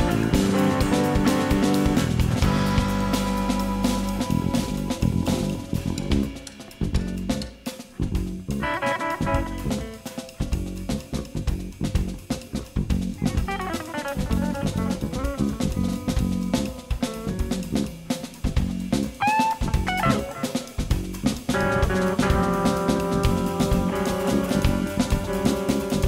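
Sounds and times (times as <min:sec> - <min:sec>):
electric guitar single-note lines: 0:00.0 - 0:06.6, 0:08.6 - 0:10.5, 0:13.2 - 0:17.8, 0:21.5 - 0:26.0
busy jazz drums: 0:00.0 - 0:26.0
walking bass line: 0:00.0 - 0:26.0.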